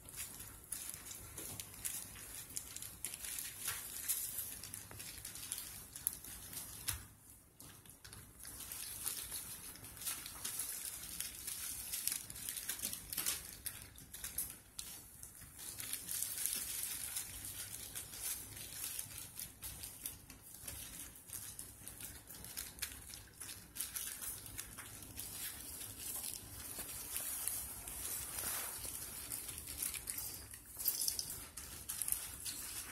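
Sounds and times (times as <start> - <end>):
paper bedding rustling: 24.0 - 30.1.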